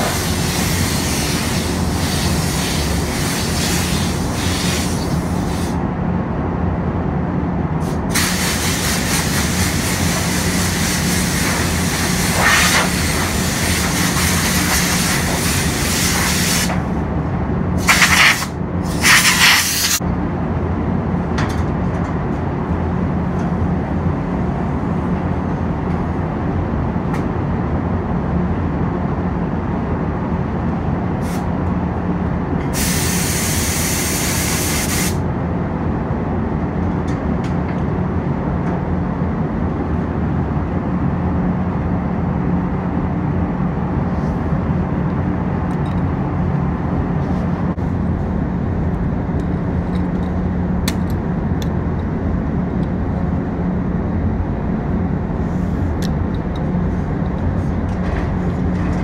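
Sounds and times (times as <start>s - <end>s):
compressed air gun hissing: 0.0s - 5.8s, 7.8s - 16.9s, 17.8s - 20.0s, 32.7s - 35.2s
ventilation fans humming: 0.0s - 59.0s.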